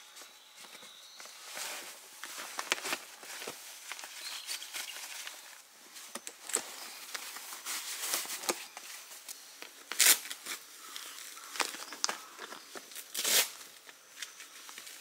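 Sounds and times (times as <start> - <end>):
footsteps scuffing and crunching: 0.1 - 9.3.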